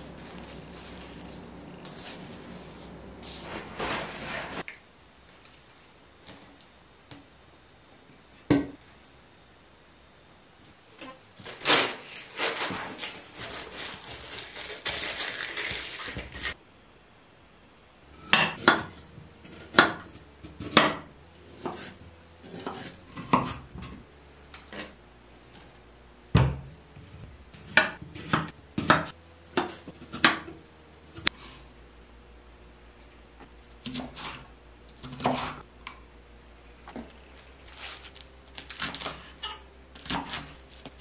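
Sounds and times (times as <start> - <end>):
dense rustling noise: 1.9 - 4.7
knife chopping on wooden board: 27.6 - 30.5.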